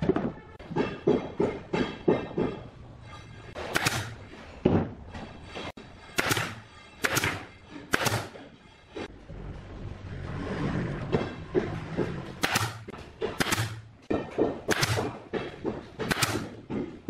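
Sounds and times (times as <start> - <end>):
nail gun firing into wood: 3.6 - 4.2, 6.2 - 8.4, 12.4 - 13.9, 14.7 - 15.2, 16.0 - 16.6.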